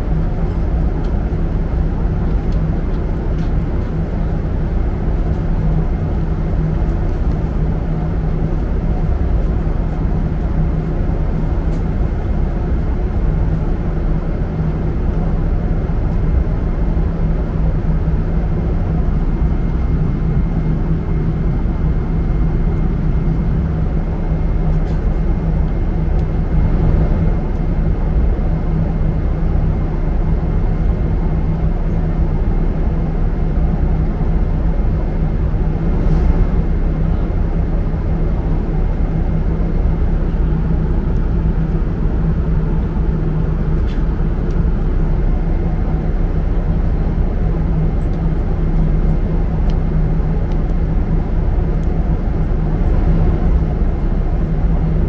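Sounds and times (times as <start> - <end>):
airliner cabin drone: 0.0 - 55.0.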